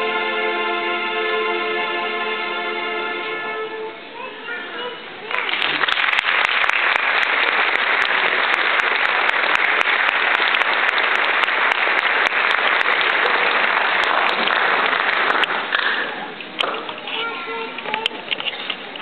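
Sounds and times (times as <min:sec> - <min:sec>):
large audience applauding: 0:05.2 - 0:16.3.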